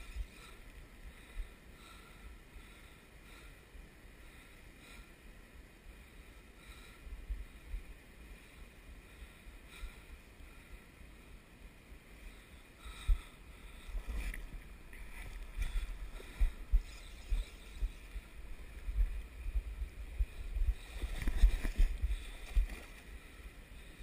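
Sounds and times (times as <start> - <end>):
wind rumble on microphone: 12.9 - 24.0.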